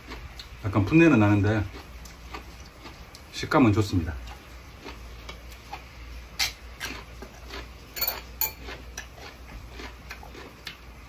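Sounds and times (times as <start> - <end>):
chewing: 0.0 - 0.6, 1.2 - 3.4, 4.1 - 11.0
chopsticks clinking against dishes: 8.0 - 8.8.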